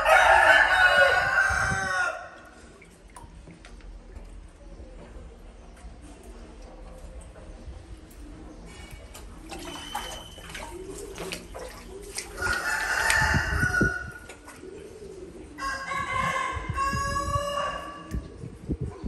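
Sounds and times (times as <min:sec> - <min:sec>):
rooster crowing: 0:00.0 - 0:02.3.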